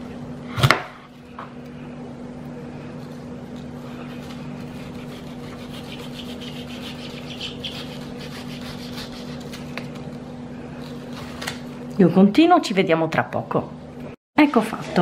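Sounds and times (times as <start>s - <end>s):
knife cutting cactus pad: 3.5s - 10.0s.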